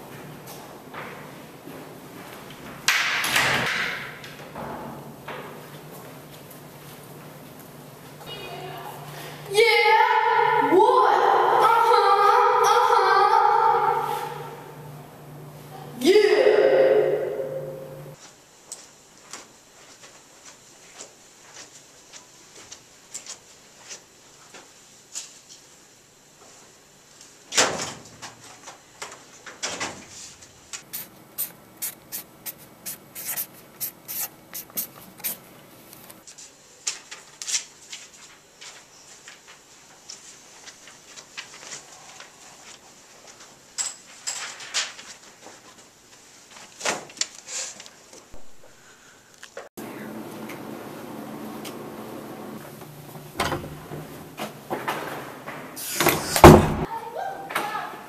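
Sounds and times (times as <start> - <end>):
felt-tip marker writing on paper: 31.0 - 35.4.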